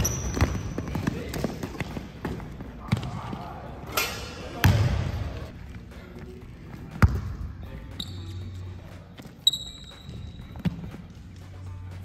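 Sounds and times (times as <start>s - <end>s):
basketball bouncing on court: 0.0s - 3.4s, 4.6s - 5.2s, 6.9s - 7.5s.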